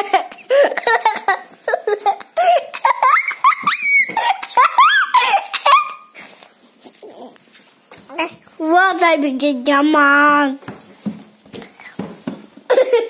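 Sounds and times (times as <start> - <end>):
young children laughing and squealing: 0.0 - 6.2.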